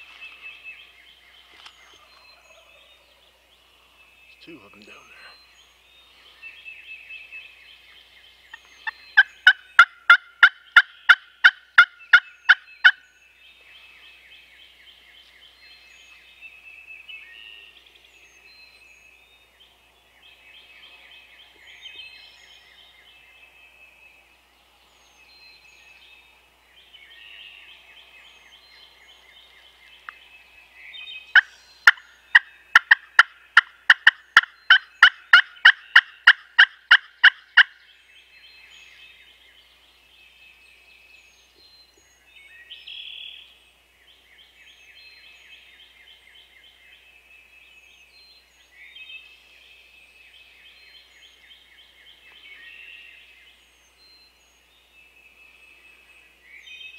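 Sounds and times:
runs of sharp bird calls: 0.0s - 13.4s, 28.9s - 38.0s
turkeys gobbling: 8.8s - 13.0s, 31.3s - 37.7s.

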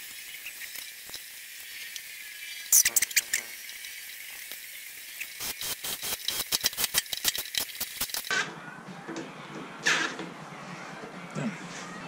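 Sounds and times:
small metal parts clicking and rattling: 6.2s - 8.3s.

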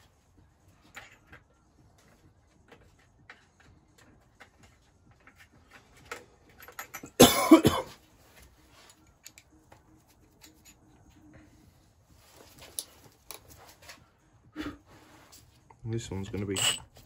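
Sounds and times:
tools clicking and tapping: 0.8s - 7.2s, 9.0s - 10.9s, 16.3s - 17.0s
person coughing: 7.1s - 8.0s.

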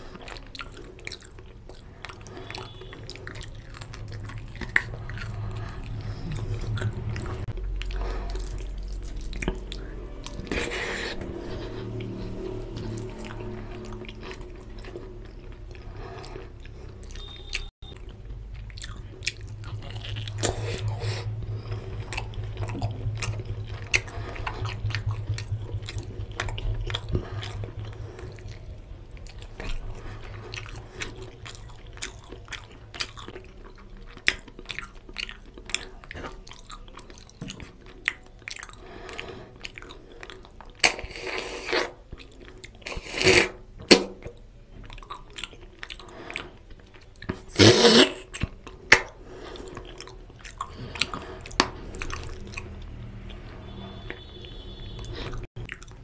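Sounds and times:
chewing and wet mouth sounds: 0.0s - 56.0s
mouth clicks and smacks: 30.6s - 53.4s.

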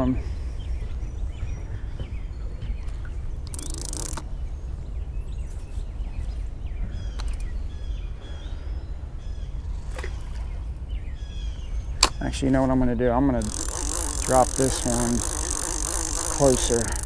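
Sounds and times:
small birds chirping: 0.0s - 17.0s
faint clicks: 3.4s - 4.3s, 13.4s - 17.0s.

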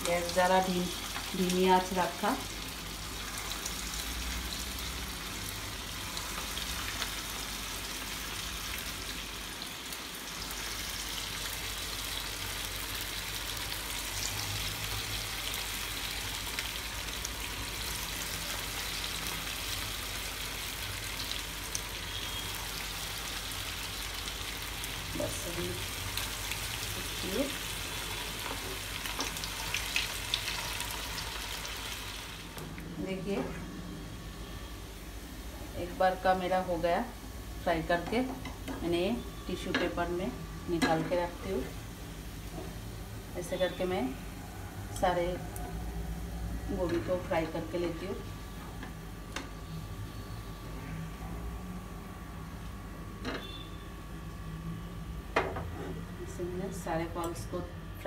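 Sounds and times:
food sizzling in hot oil: 0.0s - 32.7s.

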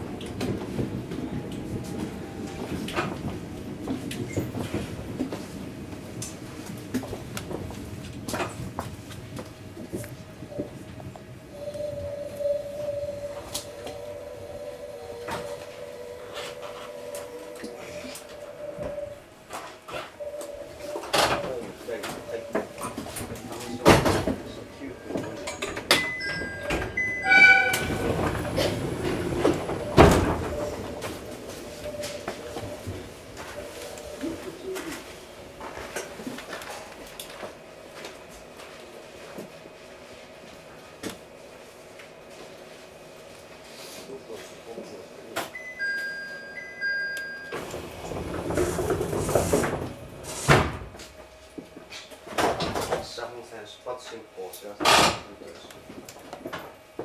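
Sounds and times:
train rumbling: 0.0s - 53.6s
train horn tone: 11.5s - 19.0s, 26.2s - 28.7s.

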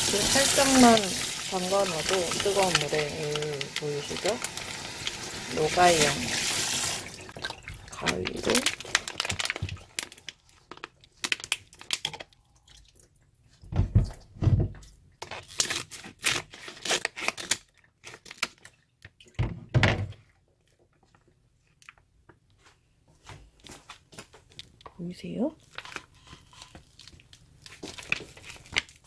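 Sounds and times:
plastic crinkling: 0.0s - 12.4s, 15.2s - 18.8s, 25.6s - 29.0s
scissors snipping plastic: 15.2s - 18.6s.

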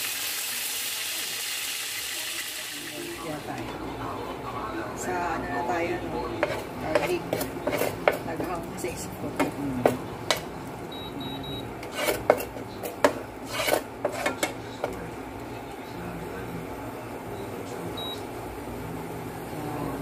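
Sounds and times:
oil sizzling: 0.0s - 3.7s
spatula scraping frying pan: 6.4s - 9.0s, 11.8s - 15.0s.

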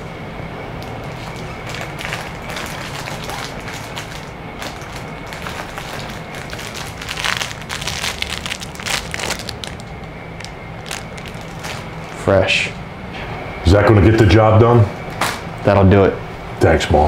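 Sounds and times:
low steady hum: 0.0s - 17.0s
plastic wrappers crinkling: 0.8s - 12.2s.

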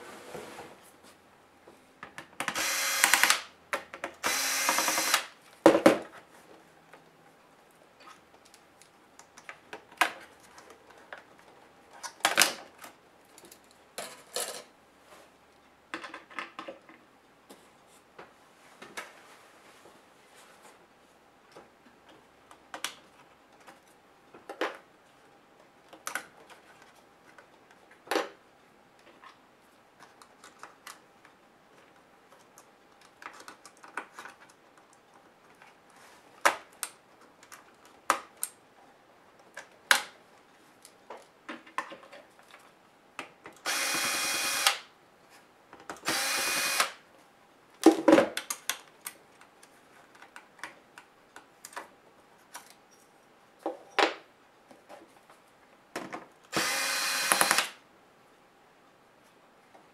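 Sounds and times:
cordless drill whirring: 2.6s - 3.4s, 4.2s - 5.3s, 43.7s - 44.8s, 46.0s - 47.0s, 56.5s - 57.7s.

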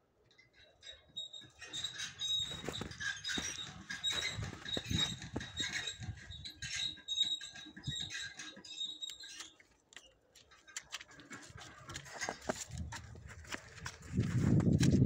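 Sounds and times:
horses chewing hay: 10.3s - 14.7s.

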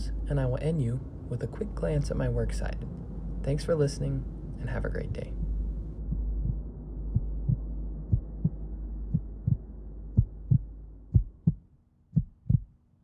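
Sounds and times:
low drone: 0.0s - 13.0s
heartbeat thumps: 6.0s - 12.7s.

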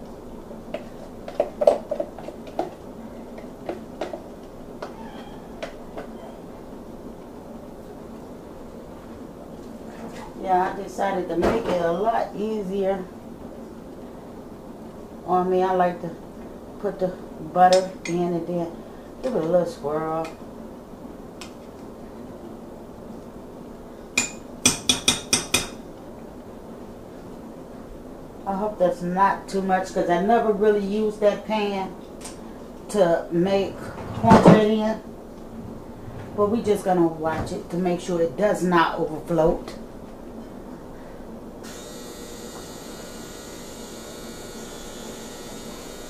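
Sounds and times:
steady low hum: 0.0s - 46.0s
faint squeak: 4.8s - 6.4s.

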